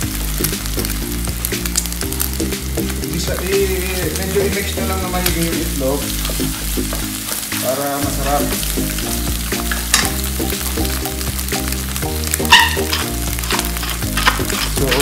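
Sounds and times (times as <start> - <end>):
background music: 0.0 - 15.0
eggs sizzling in a frying pan: 0.0 - 15.0
wooden spatula scraping a pan: 12.4 - 15.0.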